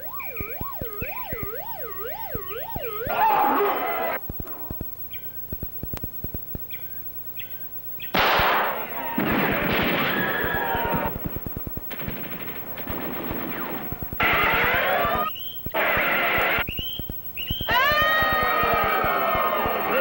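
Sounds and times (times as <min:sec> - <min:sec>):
machine gun fire: 0:08.2 - 0:15.3.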